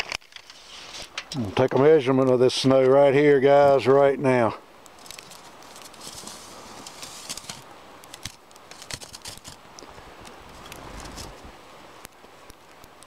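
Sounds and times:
tape measure crunching into snow: 0:00.0 - 0:01.2, 0:05.0 - 0:09.6.

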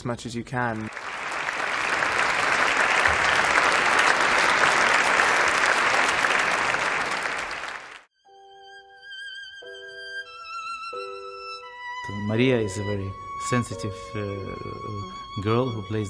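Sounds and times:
audience applauding: 0:00.7 - 0:08.1
solo violin with vibrato: 0:08.2 - 0:16.0.

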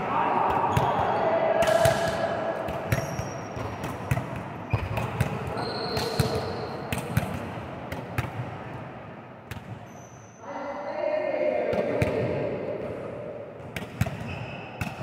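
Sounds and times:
background hubbub: 0:00.0 - 0:09.4
volleyballs smacking and bouncing: 0:00.0 - 0:09.9, 0:11.7 - 0:15.0.

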